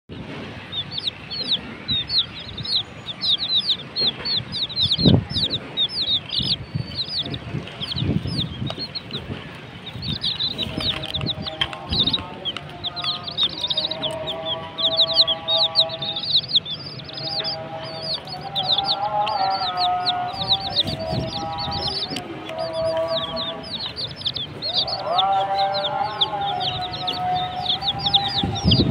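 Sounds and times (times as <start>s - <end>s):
chicks peeping: 0.1s - 28.9s
low bumps: 0.1s - 28.9s
background music with held tune: 10.4s - 28.9s.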